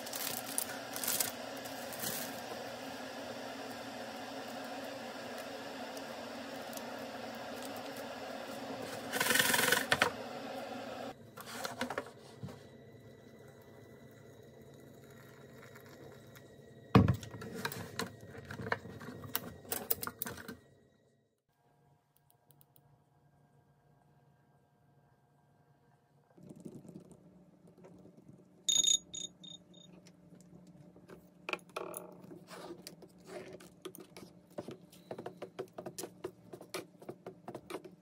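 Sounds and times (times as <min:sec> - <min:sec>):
kettle hum: 0:00.0 - 0:20.7
hot water pouring into cup: 0:12.9 - 0:16.8.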